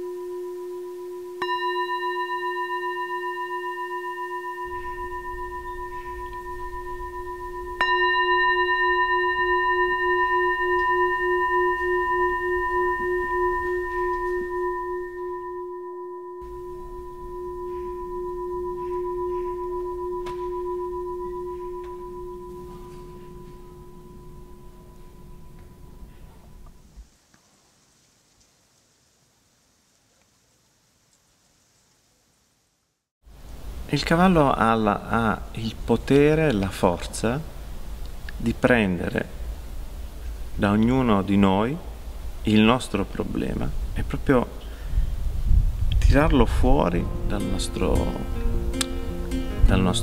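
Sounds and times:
singing bowl struck and ringing: 0:00.0 - 0:27.0.

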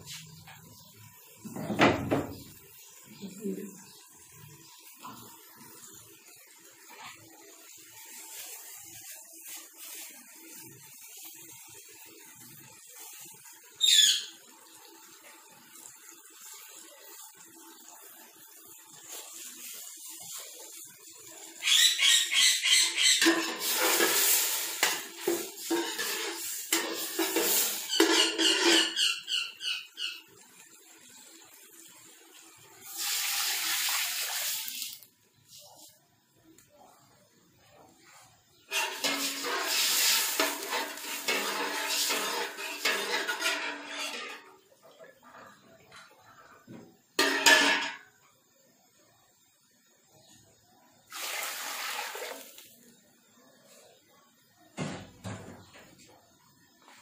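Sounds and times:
pot simmering: 0:00.0 - 0:01.6, 0:02.3 - 0:21.8, 0:22.7 - 0:37.2, 0:37.8 - 0:46.7, 0:47.3 - 0:54.6
water pouring and splashing: 0:01.1 - 0:21.8, 0:23.0 - 0:36.0, 0:38.6 - 0:44.8, 0:51.1 - 0:53.0.

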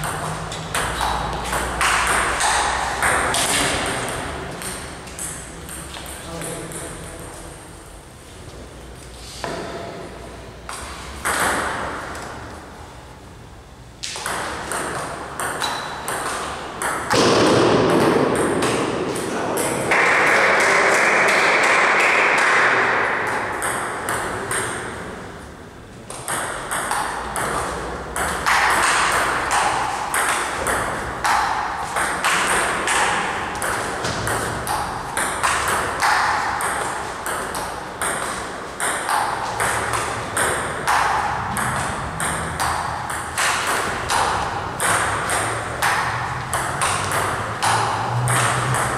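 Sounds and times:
table tennis ball ticking: 0:26.1 - 0:48.9.

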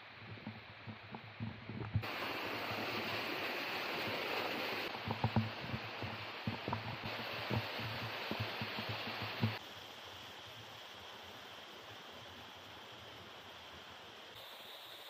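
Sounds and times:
stream and waterfall rushing: 0:02.0 - 0:10.1.

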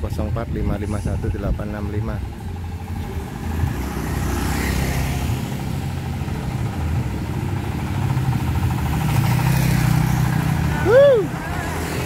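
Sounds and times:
engine rumble: 0:00.0 - 0:12.0
motor scooter passing: 0:02.5 - 0:12.0.

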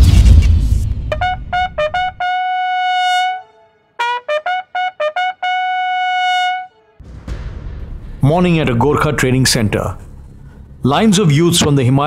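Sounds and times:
bugle call: 0:01.1 - 0:07.0.

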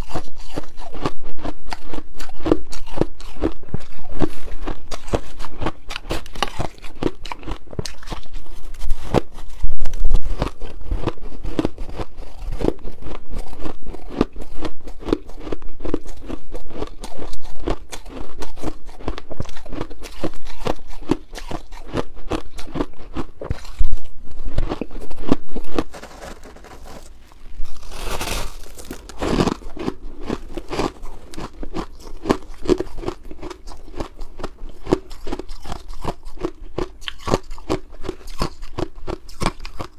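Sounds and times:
ice being chewed and crunched: 0:00.0 - 0:39.9
metal spoon scooping shaved ice: 0:25.8 - 0:29.6.

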